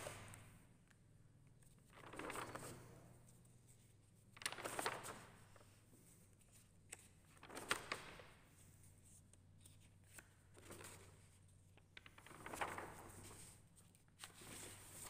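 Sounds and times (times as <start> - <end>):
paper pages turning: 1.6 - 3.4, 4.3 - 8.9, 9.6 - 15.0.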